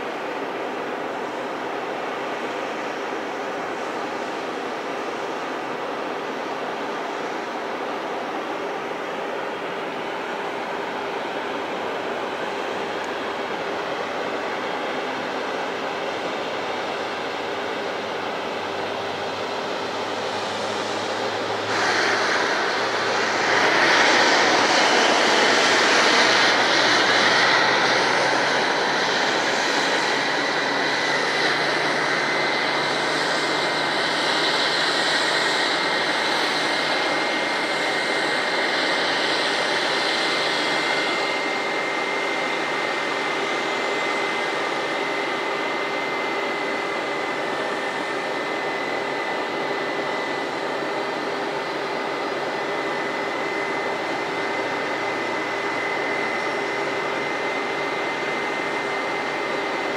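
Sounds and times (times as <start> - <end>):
jet engines rushing and whining: 0.0 - 59.9.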